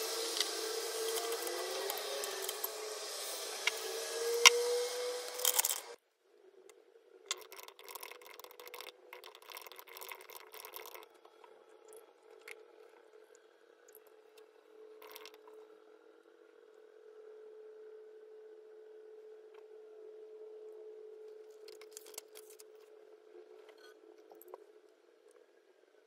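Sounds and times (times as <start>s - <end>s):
ice tray rattling and scraping: 5.2s - 6.0s.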